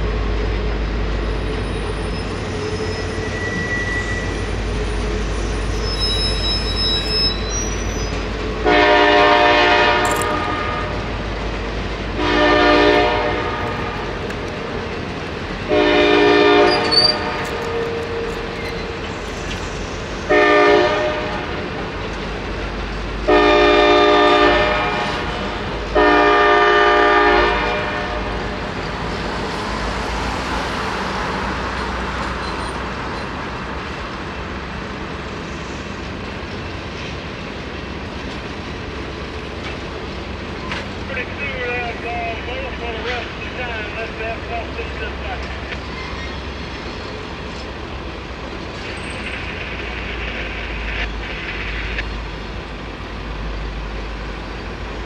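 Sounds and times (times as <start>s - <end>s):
passenger cars rolling rumble: 0.0s - 55.0s
locomotive horn blasts: 8.6s - 11.1s, 12.2s - 14.2s, 15.7s - 19.0s, 20.3s - 21.6s, 23.3s - 28.5s.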